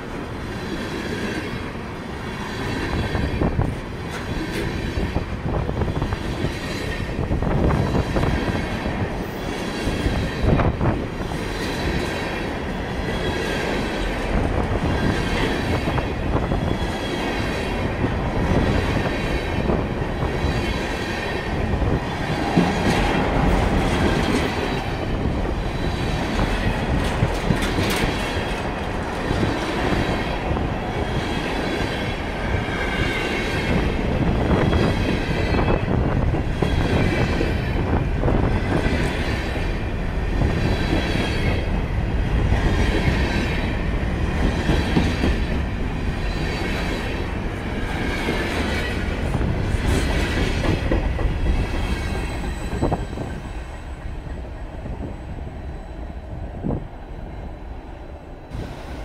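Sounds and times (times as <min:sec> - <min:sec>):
train wheels rumbling on rail: 0:00.0 - 0:59.0
faint high-pitched wheel squeal: 0:51.9 - 0:54.2, 0:55.0 - 0:56.4.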